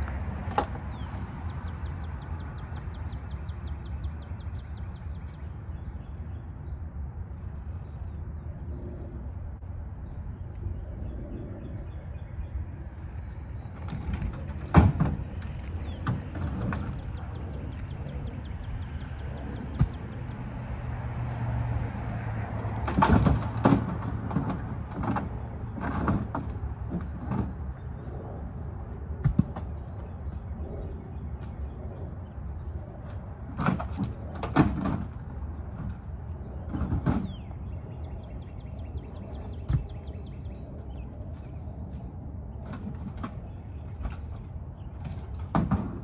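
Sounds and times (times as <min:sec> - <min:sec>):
logs thudding onto a pile: 0:22.8 - 0:27.6.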